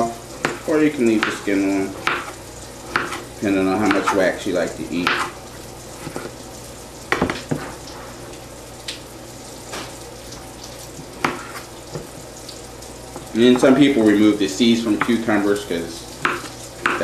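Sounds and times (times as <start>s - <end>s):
food sizzling in oil: 0.0s - 17.0s
knife knocking on cutting board: 7.1s - 7.7s.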